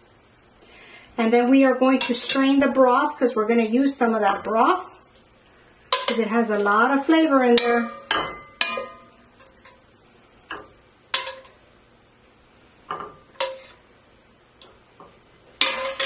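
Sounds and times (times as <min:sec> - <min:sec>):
metal utensil clinking on pot: 0:05.9 - 0:06.8, 0:07.5 - 0:09.8, 0:10.5 - 0:11.6, 0:12.9 - 0:13.8, 0:15.6 - 0:16.0.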